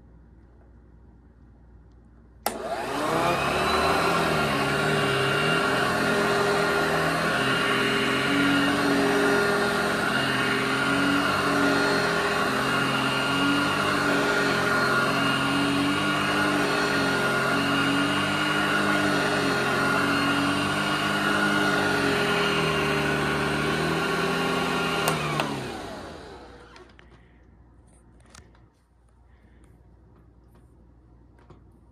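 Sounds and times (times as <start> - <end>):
vacuum switch click: 2.4 - 3.0
vacuum cleaner motor hum: 2.4 - 27.3.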